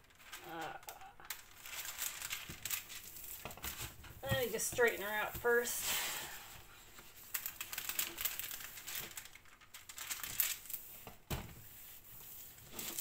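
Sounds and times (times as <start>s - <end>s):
plastic film crinkling: 0.0s - 13.0s.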